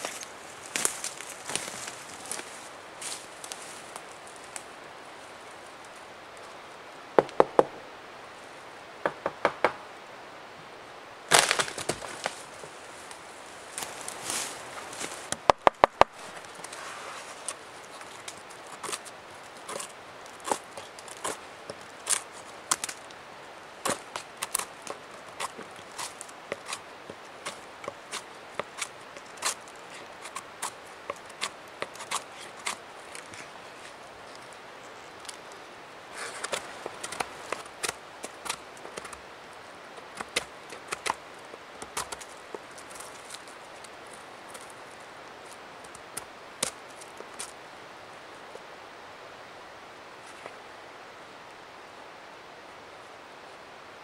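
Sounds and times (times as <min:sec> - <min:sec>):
knife cracking rotten wood: 0:11.3 - 0:12.4, 0:36.3 - 0:39.2
dry wood cracking and snapping: 0:11.3 - 0:16.8, 0:17.4 - 0:23.2, 0:23.8 - 0:33.4, 0:36.2 - 0:39.2, 0:40.0 - 0:41.2, 0:41.8 - 0:43.9.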